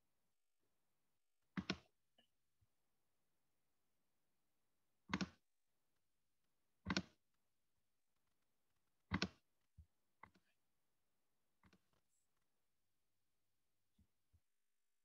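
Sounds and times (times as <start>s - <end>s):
computer mouse clicking: 1.6s - 1.9s, 5.1s - 5.4s, 6.9s - 7.2s, 9.1s - 9.4s.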